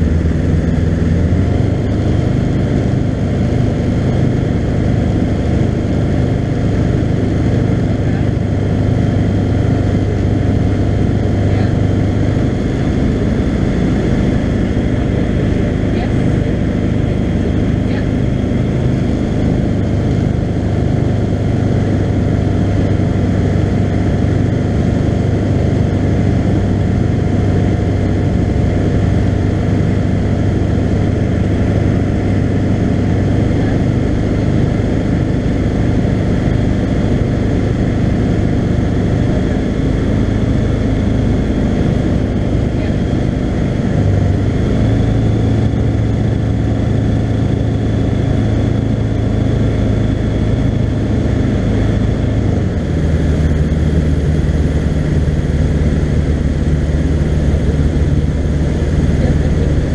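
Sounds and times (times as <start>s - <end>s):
aircraft engine and propeller droning: 0.0s - 59.9s.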